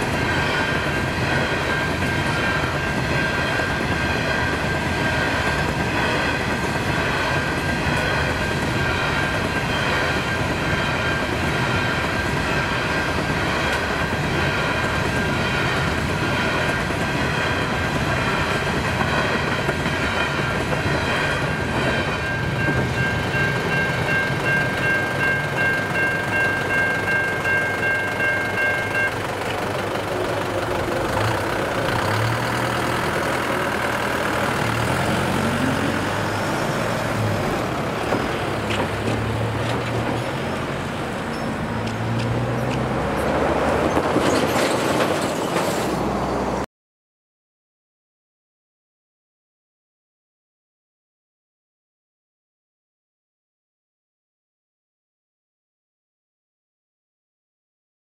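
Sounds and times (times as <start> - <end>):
freight wagons rolling past: 0.0 - 46.6
level crossing bell ringing: 21.9 - 29.4
truck engine pulling away: 29.4 - 44.5.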